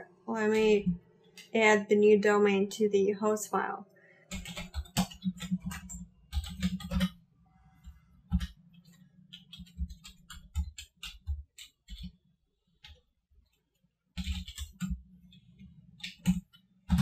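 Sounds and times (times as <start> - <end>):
keyboard typing: 4.3 - 7.2, 7.8 - 12.2, 14.2 - 17.0.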